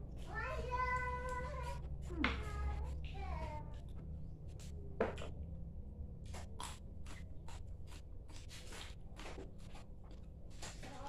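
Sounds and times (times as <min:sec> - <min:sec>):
wet chewing and lip-smacking: 0:06.2 - 0:10.4.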